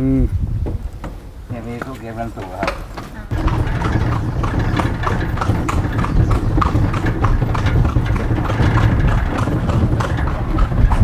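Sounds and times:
horse hooves clip-clopping on pavement: 0.7s - 11.0s.

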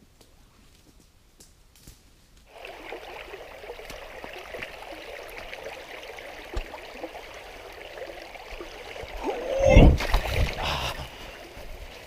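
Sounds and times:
stream babbling over pebbles: 2.5s - 12.0s.

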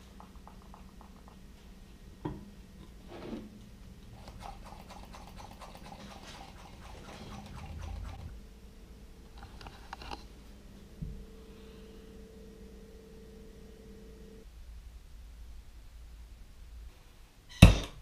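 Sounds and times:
small rapid clicks: 0.0s - 1.5s, 4.1s - 8.3s
faint steady hum: 0.0s - 18.0s.

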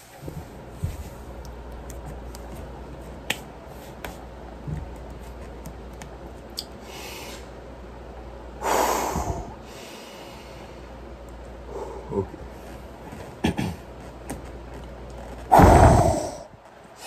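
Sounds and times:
steady low hum: 0.0s - 17.0s
man breathing hard: 6.8s - 7.5s, 8.6s - 11.0s, 11.7s - 12.4s, 15.5s - 16.6s.

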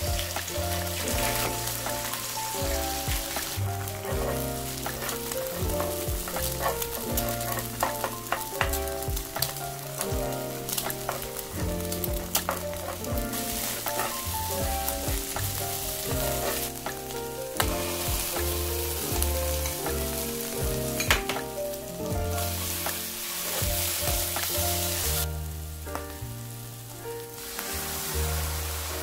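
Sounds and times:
eggs sizzling in a frying pan: 0.0s - 29.0s
spatula scraping and tapping pan: 0.2s - 20.2s.

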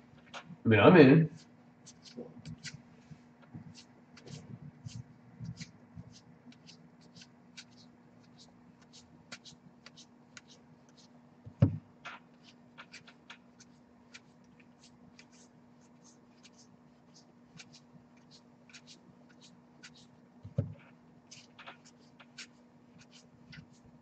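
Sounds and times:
cards clicking and sliding: 5.5s - 16.7s, 17.6s - 23.8s
thump: 11.5s - 11.8s.

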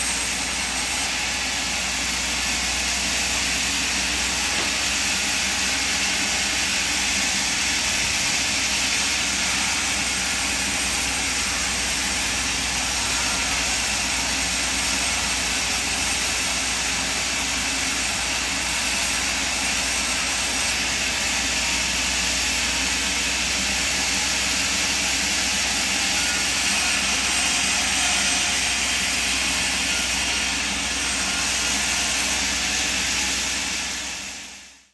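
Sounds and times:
band saw blade hissing in wood: 0.0s - 6.8s.

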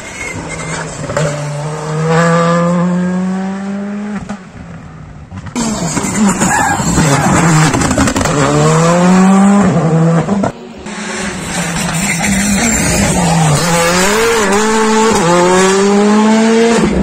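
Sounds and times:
car revving through gear changes: 13.5s - 17.0s.

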